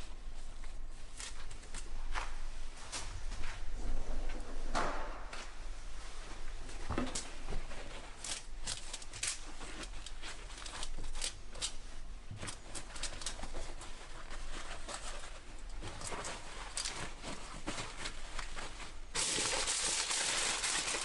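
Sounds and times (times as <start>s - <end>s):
paper and foil crumpling: 8.2s - 11.8s, 12.4s - 21.0s.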